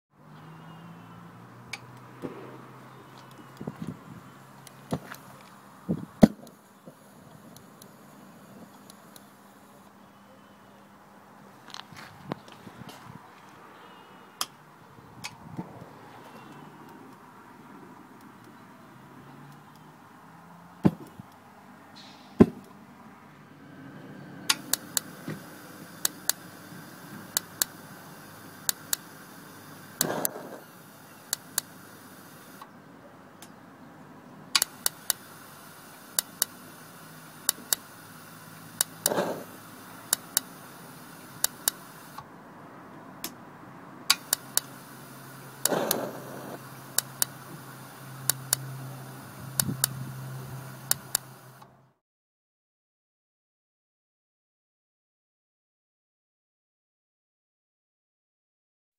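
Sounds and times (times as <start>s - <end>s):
spark ignition clicking: 1.7s - 10.0s, 24.5s - 32.7s, 34.6s - 42.3s, 44.1s - 51.7s.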